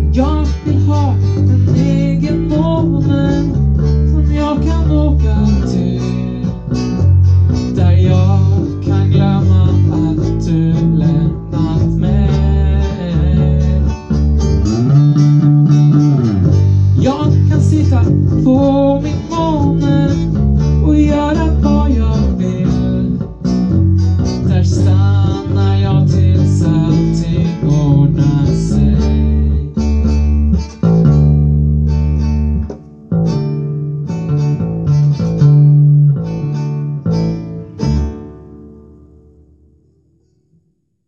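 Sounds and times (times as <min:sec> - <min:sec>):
deep bass line: 0:00.0 - 0:40.0
strummed guitar chords: 0:00.0 - 0:40.9
picked guitar melody: 0:00.0 - 0:41.0.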